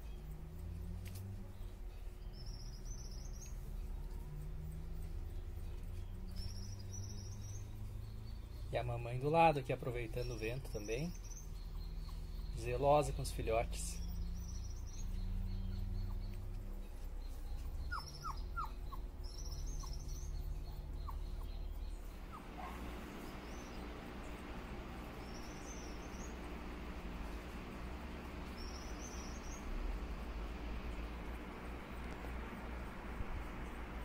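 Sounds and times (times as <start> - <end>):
electric fan humming: 0.0 - 34.0
high bird chirps: 10.0 - 24.4, 28.4 - 29.7.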